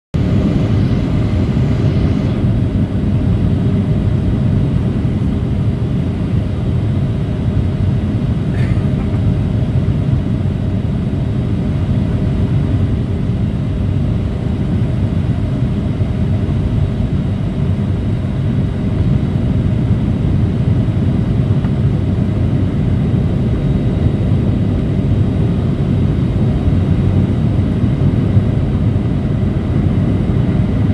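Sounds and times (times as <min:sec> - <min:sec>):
faint high whine: 0:00.2 - 0:02.6
airliner cabin rumble: 0:00.2 - 0:30.9.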